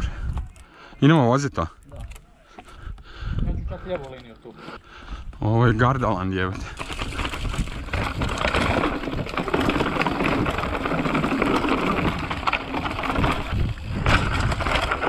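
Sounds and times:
tyres crunching over dirt: 0:05.4 - 0:15.0
bike rattling over bumps: 0:05.8 - 0:15.0.

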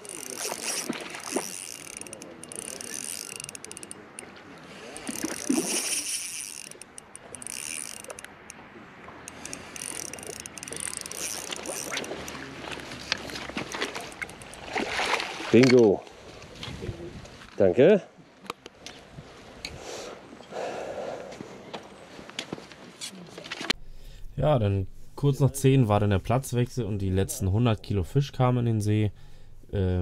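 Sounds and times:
fishing reel whirring and ratcheting: 0:00.0 - 0:08.6, 0:09.3 - 0:12.5, 0:13.8 - 0:14.8.

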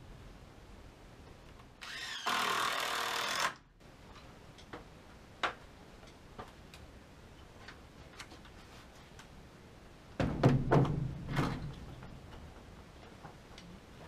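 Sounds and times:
power drill driving screw into wood: 0:01.8 - 0:03.7.

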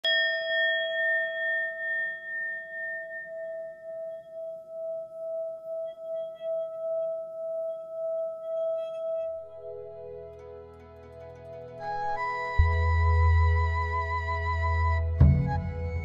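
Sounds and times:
faint higher shimmer: 0:00.0 - 0:07.7
singing bowl ringing: 0:00.0 - 0:09.9.

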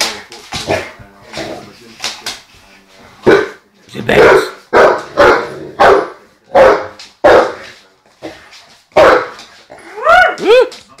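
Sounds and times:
dog barking deeply: 0:03.2 - 0:07.6.

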